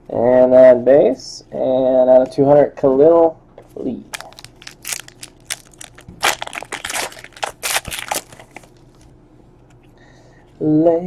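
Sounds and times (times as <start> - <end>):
wrapper crinkling: 4.1 - 9.1.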